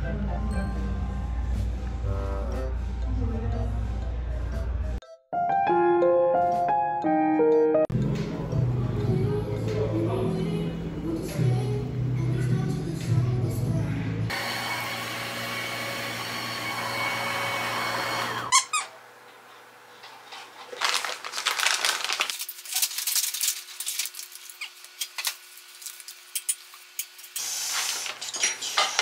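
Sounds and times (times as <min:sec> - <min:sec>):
cardio machine whirring: 0:14.3 - 0:19.4.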